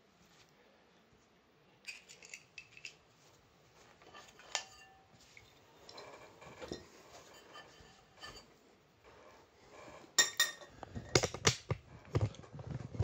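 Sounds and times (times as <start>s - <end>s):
small parts clicking and clinking: 1.8s - 3.1s.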